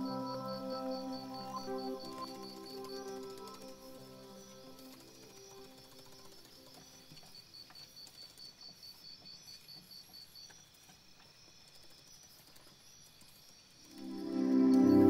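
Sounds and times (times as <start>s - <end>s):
soft ambient music: 0.0s - 8.1s, 13.8s - 15.0s
high cricket-like chirping: 0.0s - 15.0s.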